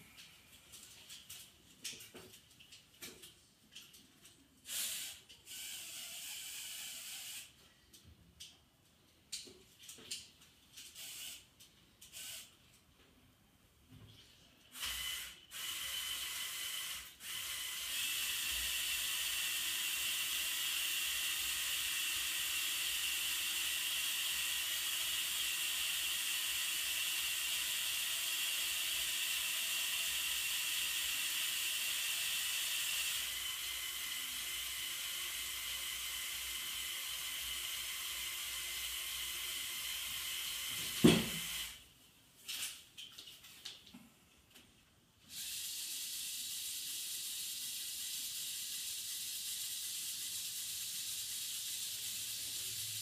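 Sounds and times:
small electric motors whirring: 4.7 - 7.6, 10.8 - 12.5, 14.8 - 41.8, 45.3 - 53.0.

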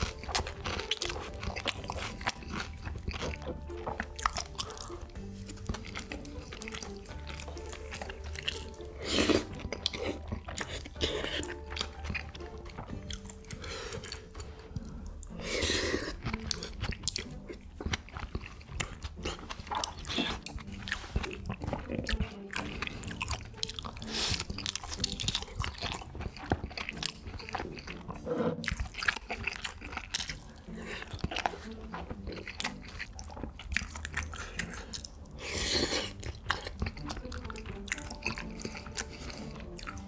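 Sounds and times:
crunchy bites: 0.0 - 6.9
wet chewing: 0.0 - 40.0.

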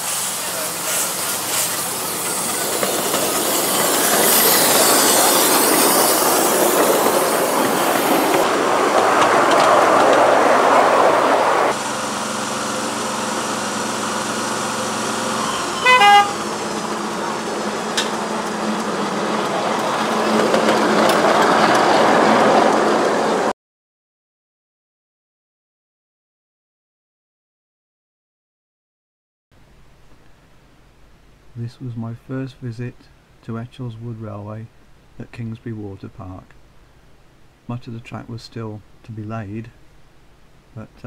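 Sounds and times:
locomotive engine drone: 0.0 - 23.5
steam locomotive hissing: 0.0 - 23.5
locomotive horn toot: 15.2 - 16.8.

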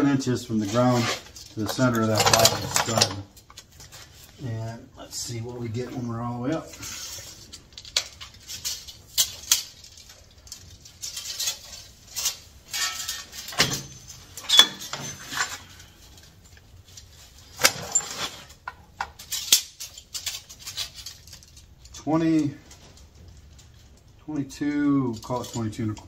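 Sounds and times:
tape measure clicking and rattling: 7.0 - 15.0, 16.9 - 22.5.

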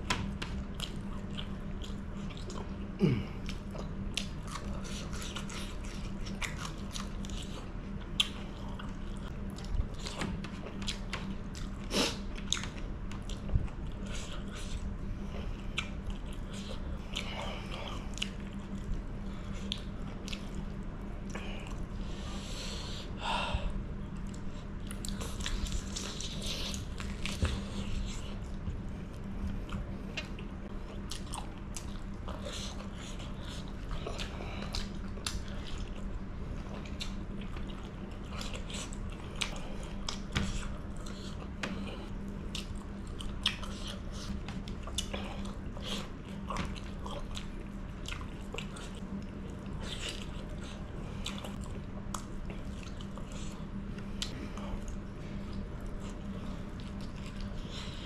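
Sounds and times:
faint steady hum: 0.0 - 58.0
person chewing and biting: 3.4 - 14.9.

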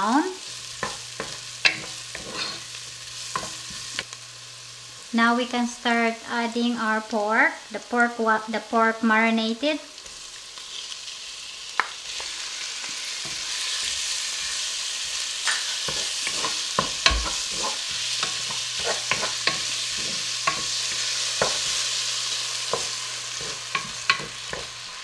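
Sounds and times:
meat sizzling in hot oil: 0.0 - 25.0
wooden spoon scraping pot: 0.8 - 2.6, 15.8 - 21.9, 22.7 - 24.8.

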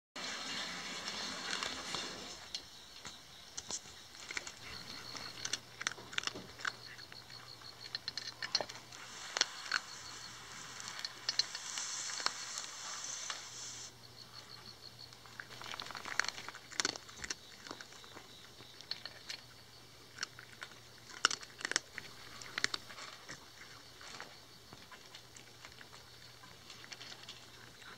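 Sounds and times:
kibble clicking on steel bowl: 3.0 - 12.4, 15.4 - 19.5
cat crunching dry kibble: 3.6 - 13.8, 15.2 - 27.9.

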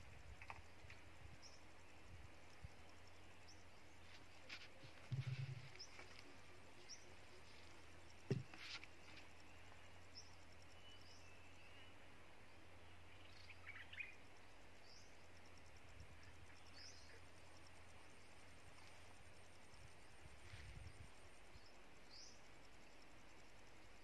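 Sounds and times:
faint high bird chirps: 3.0 - 12.1, 12.8 - 14.2.

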